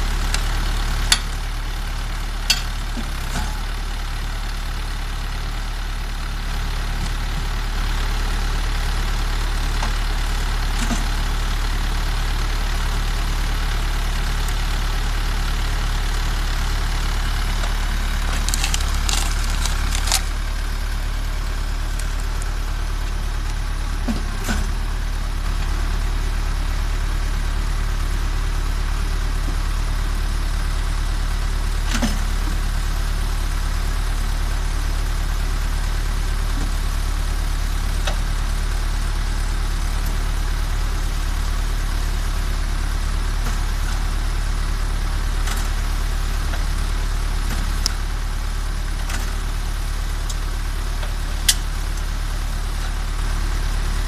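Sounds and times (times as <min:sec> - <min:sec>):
tractor diesel engine running: 0:00.0 - 0:54.0
wood splitting cracks: 0:17.6 - 0:20.6.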